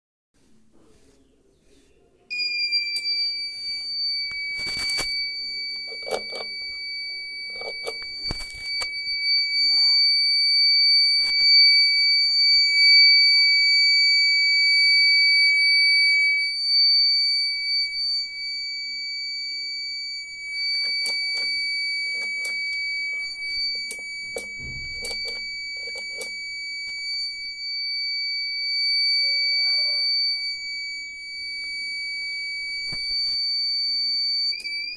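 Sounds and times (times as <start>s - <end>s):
high-pitched warning buzzer: 2.4s - 34.9s.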